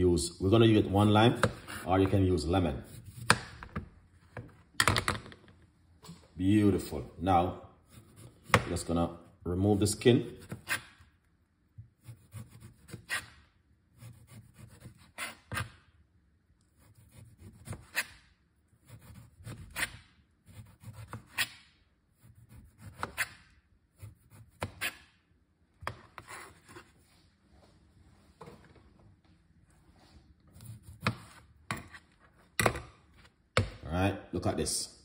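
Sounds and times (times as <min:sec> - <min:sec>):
knife scraping lime peel: 0:12.0 - 0:13.4, 0:14.0 - 0:15.8, 0:16.8 - 0:18.2.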